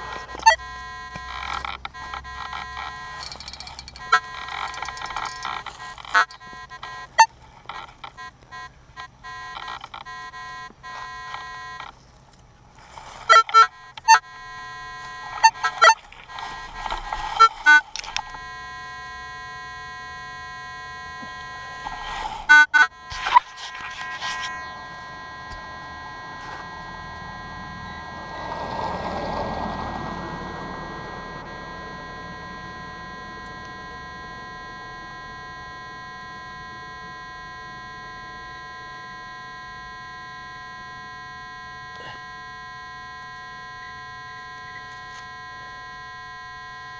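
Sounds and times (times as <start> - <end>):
metal detector beeps: 0.0 - 12.0, 12.8 - 46.9
metal detector steady tone: 0.0 - 46.9.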